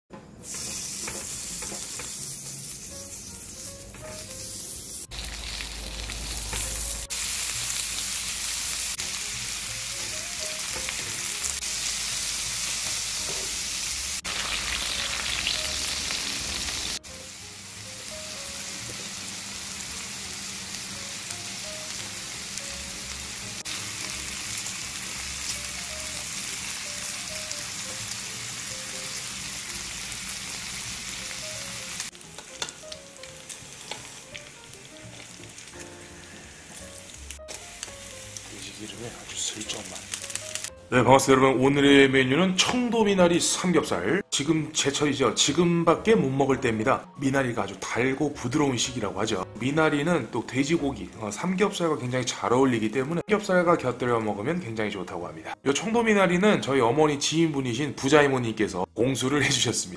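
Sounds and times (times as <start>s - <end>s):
pork sizzling on grill: 0.4s - 40.8s.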